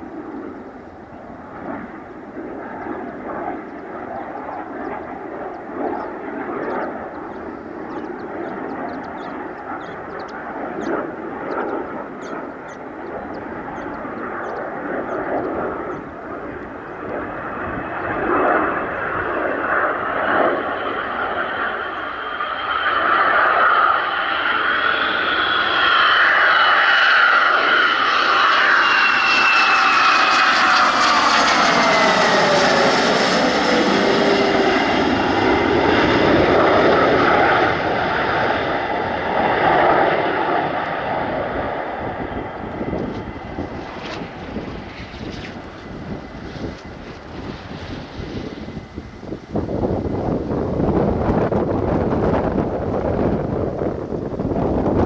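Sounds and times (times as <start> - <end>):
jet aircraft passing: 0.0 - 55.0.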